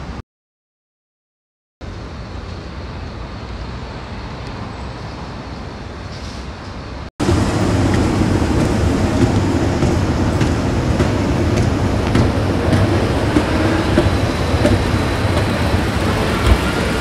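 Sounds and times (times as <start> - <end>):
road traffic hum: 1.8 - 17.0
escalator rumbling: 7.2 - 17.0.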